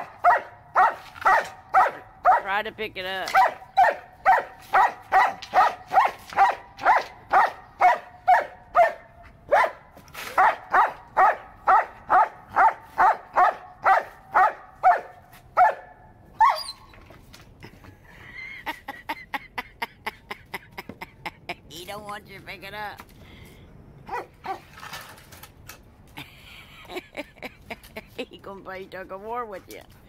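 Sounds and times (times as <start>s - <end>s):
dog yelping: 0.0s - 2.4s, 3.3s - 9.8s, 10.4s - 16.9s, 24.1s - 24.7s
dog barking: 0.0s - 2.5s, 3.3s - 16.6s, 24.1s - 24.7s.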